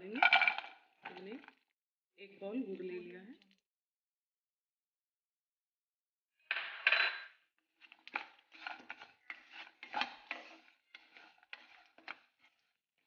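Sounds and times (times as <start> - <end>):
wooden spatula scraping a pan: 7.8 - 13.0.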